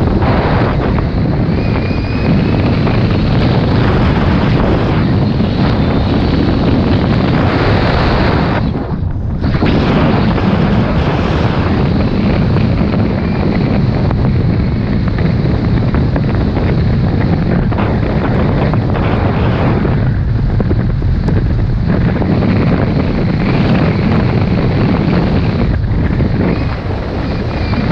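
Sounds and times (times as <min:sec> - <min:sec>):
snowboard hissing through powder snow: 0:00.0 - 0:20.1
wind buffeting microphone: 0:00.0 - 0:27.9.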